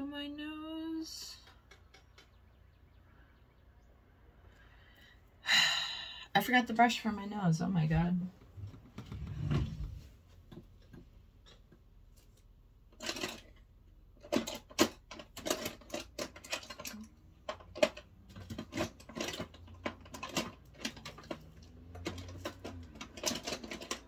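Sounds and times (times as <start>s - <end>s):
clicks and clatters of makeup items: 10.5s - 24.0s.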